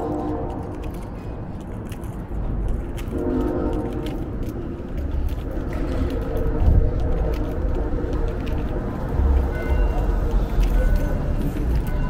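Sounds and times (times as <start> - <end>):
distant horn blasts: 0.0 - 0.9, 3.1 - 4.3
low rumble: 0.0 - 10.8.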